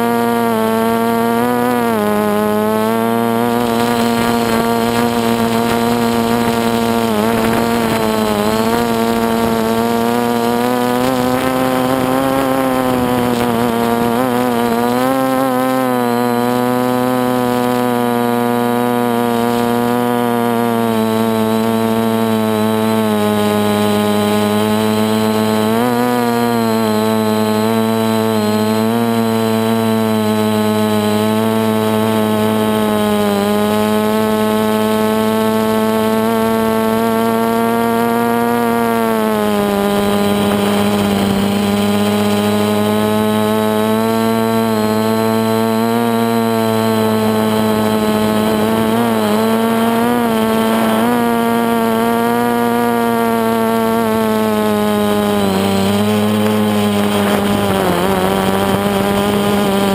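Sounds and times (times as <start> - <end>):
drone propellers buzzing: 0.0 - 59.9.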